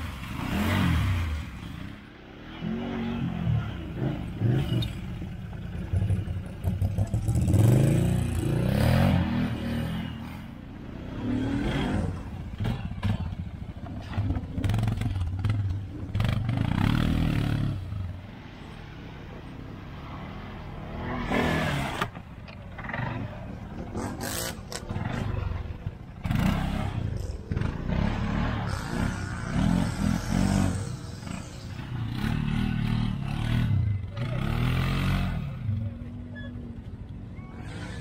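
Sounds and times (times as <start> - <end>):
quad bike engine revving: 5.8 - 10.3, 11.0 - 17.9, 23.9 - 35.7.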